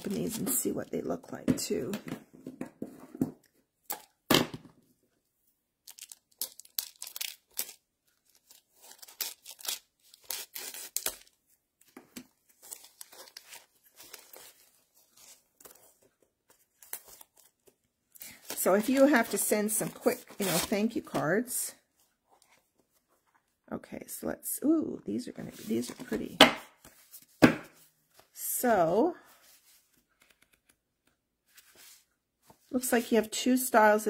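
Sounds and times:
plastic shrink-wrap crinkling: 5.8s - 11.3s
plastic wrap ripping: 5.9s - 11.3s.

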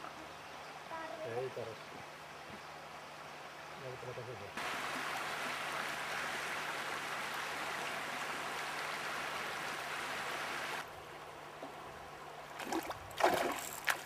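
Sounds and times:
river water rushing over rapids: 4.6s - 10.9s.

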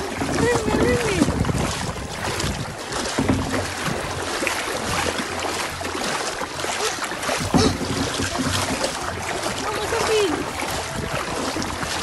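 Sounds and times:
paddle splashing water: 0.0s - 12.0s.

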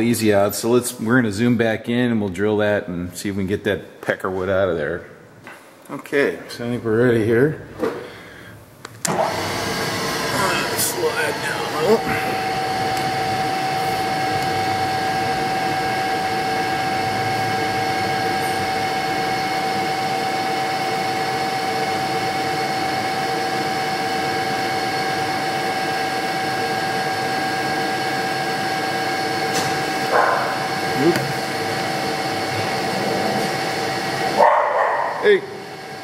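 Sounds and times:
milling machine spindle whine: 9.1s - 34.4s, 35.1s - 36.0s.

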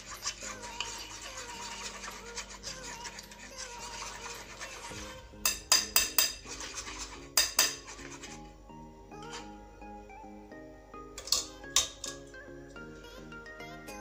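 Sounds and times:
spoon scraping through a sieve: 0.0s - 8.5s.

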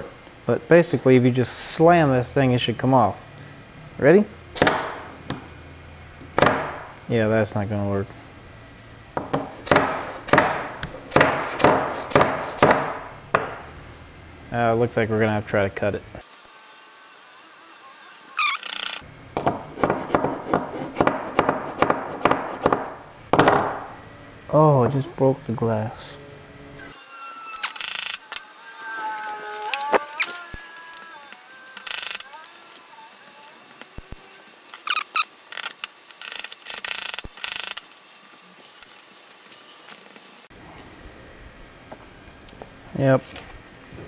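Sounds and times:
razor blade scraping: 18.2s - 19.1s, 26.8s - 38.1s
short rising squeak: 18.3s - 19.0s, 26.7s - 33.7s, 34.7s - 35.5s.

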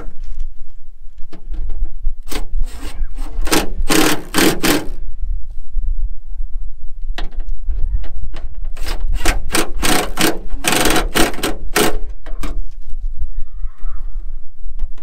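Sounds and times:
ratchet wrench strokes: 2.6s - 5.0s, 8.8s - 12.0s.

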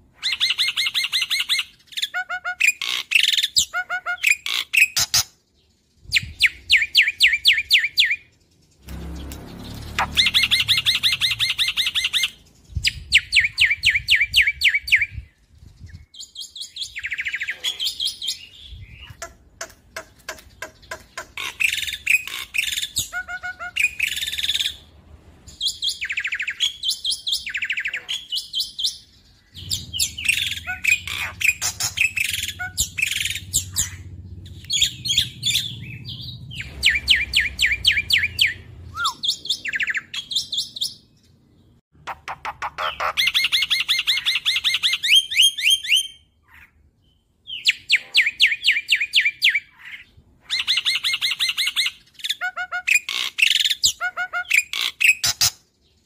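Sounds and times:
bird singing and chattering: 0.2s - 24.9s, 25.5s - 56.0s
bird sharp clicking notes: 19.2s - 22.4s.

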